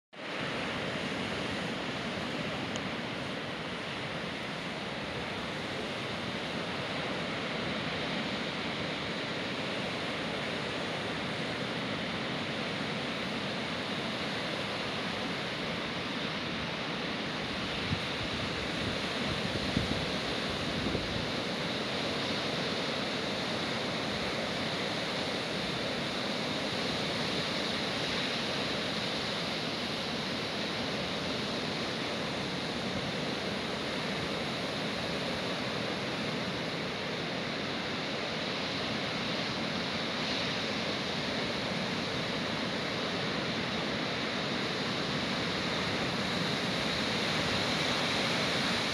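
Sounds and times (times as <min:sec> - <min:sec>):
wind: 0:00.1 - 0:48.9
waves breaking on shore: 0:00.2 - 0:48.9.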